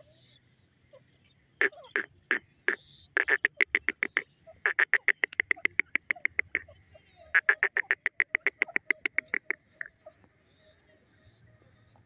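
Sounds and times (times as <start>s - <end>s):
bird calling short sharp notes: 7.3s - 10.2s.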